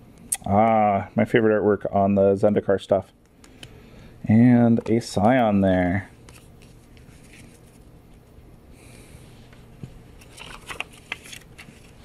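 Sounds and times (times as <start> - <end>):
cards and paper rustling: 4.8 - 7.9, 10.2 - 12.0.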